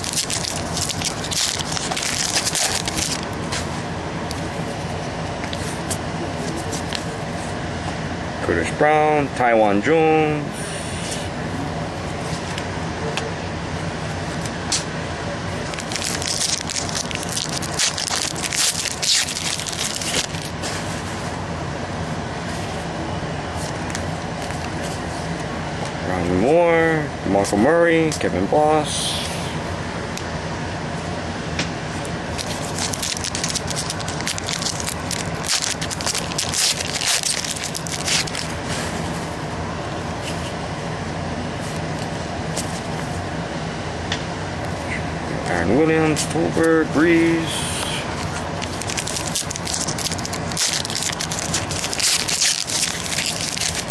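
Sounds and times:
trading cards rustling: 0.0s - 3.8s, 15.6s - 21.0s, 32.3s - 39.0s, 48.1s - 53.9s
steady low hum: 0.0s - 53.9s.

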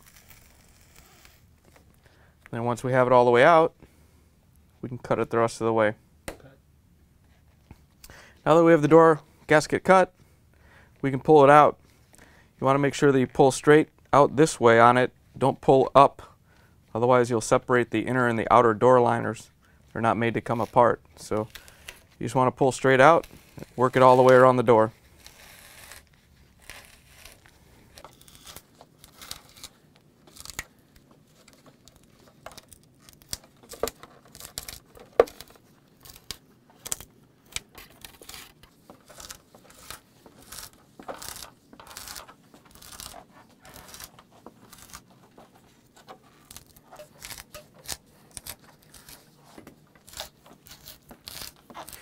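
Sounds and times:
rubber gasket ripping and crackling: 0.0s - 1.9s, 25.1s - 30.8s, 31.4s - 52.0s.

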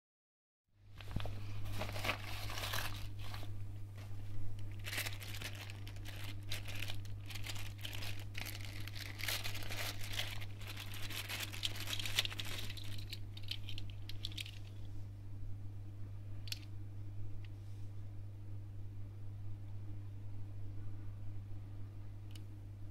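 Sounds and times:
low hum: 0.8s - 22.9s
envelope tearing: 1.0s - 3.5s, 4.6s - 14.6s
plastic bag crinkling: 1.0s - 14.8s.

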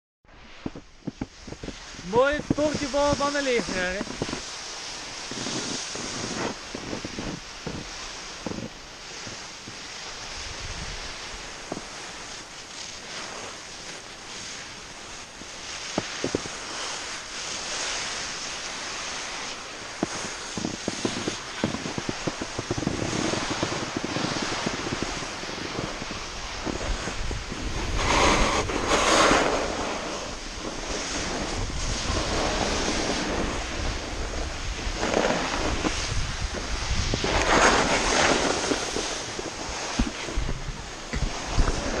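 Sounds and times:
wind on microphone: 0.3s - 42.0s
skis scraping over snow: 0.4s - 42.0s.

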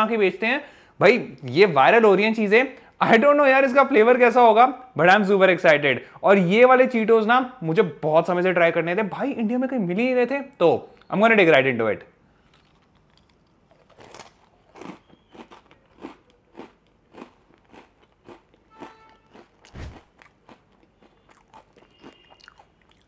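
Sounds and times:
chips crunching while chewed: 12.4s - 23.0s.

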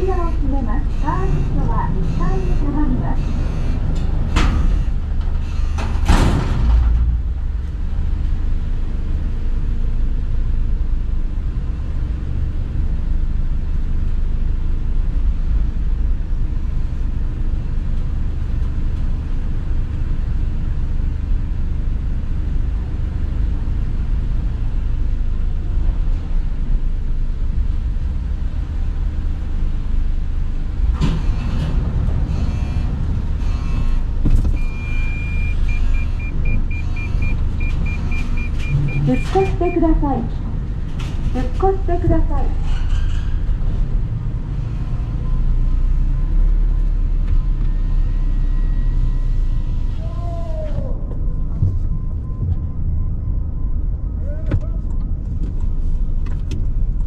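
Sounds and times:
car lift rumbling: 0.0s - 8.7s, 25.6s - 45.9s.

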